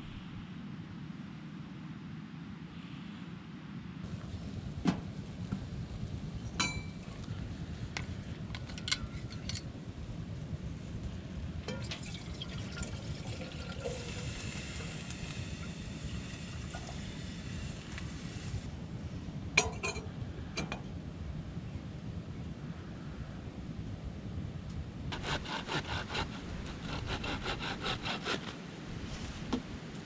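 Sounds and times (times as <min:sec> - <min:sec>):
steady low rumble: 0:04.0 - 0:25.4
metallic clinks and knocks: 0:08.5 - 0:09.6
kettle simmering with a hiss: 0:10.4 - 0:18.8.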